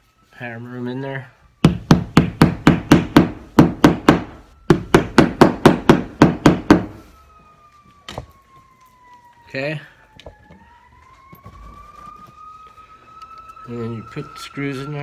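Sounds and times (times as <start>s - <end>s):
hammer tapping wall anchors: 1.6s - 6.9s.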